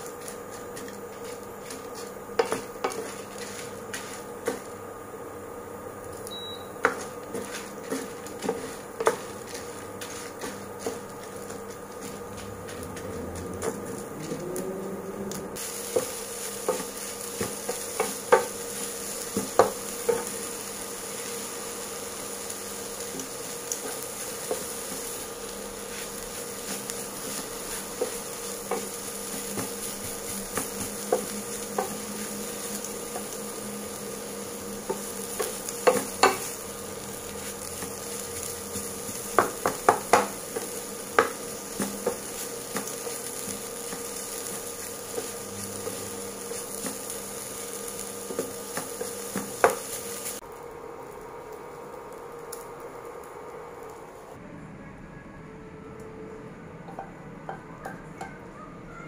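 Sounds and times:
spatula scraping in pan: 0.0s - 4.8s, 6.8s - 14.4s, 15.6s - 50.4s
light sizzle: 0.0s - 54.4s
spatula knocking on pan: 34.8s - 36.5s, 38.8s - 43.2s.

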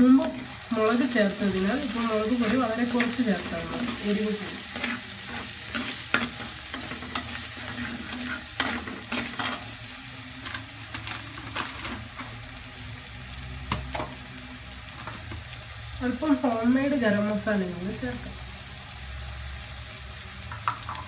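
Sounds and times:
food sizzling in oil: 0.0s - 21.0s
spoon scraping pot: 2.3s - 9.7s.

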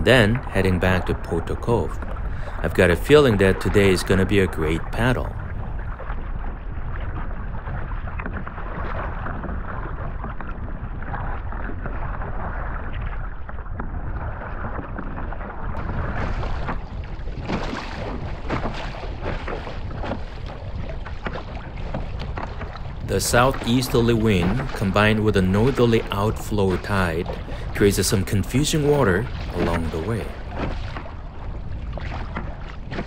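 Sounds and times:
paddle strokes in water: 0.0s - 33.0s
water splashing against kayak hull: 0.0s - 33.0s
wind rumble on microphone: 0.0s - 33.0s.

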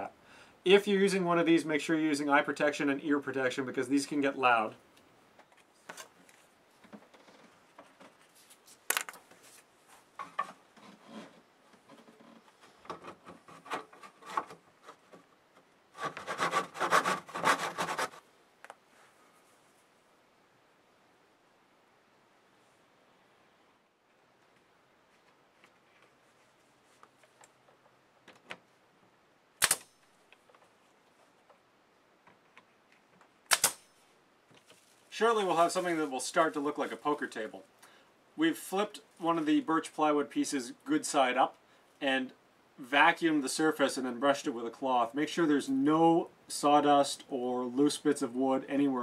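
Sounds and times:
pin nailer double crack: 29.6s - 30.0s, 33.5s - 33.9s.

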